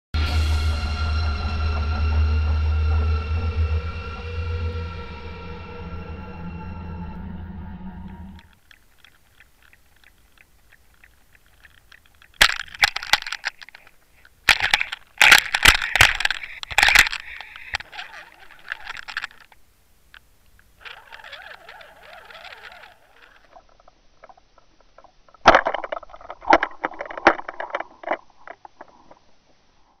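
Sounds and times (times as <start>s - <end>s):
fish thrashing on lure underwater: 8.4s - 29.4s.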